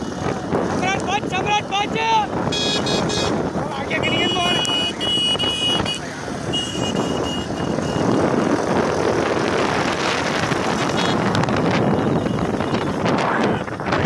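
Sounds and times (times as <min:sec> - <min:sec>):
wind buffeting microphone: 0:00.0 - 0:14.0
motorcycle engine running: 0:01.6 - 0:14.0.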